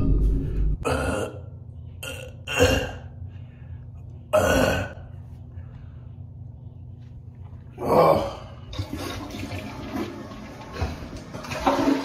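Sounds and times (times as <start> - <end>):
toilet flushing: 8.7 - 12.0.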